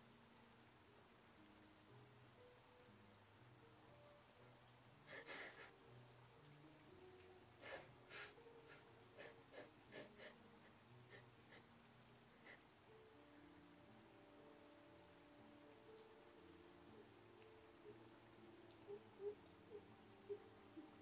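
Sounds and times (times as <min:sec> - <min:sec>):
soft background music: 0:00.0 - 0:21.0
woman sniffing and sobbing: 0:05.1 - 0:05.8, 0:07.6 - 0:11.6.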